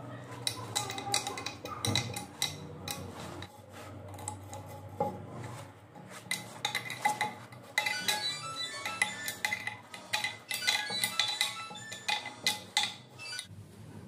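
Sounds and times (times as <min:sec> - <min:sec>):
metal bolts clinking on ceramic: 0:06.4 - 0:13.5.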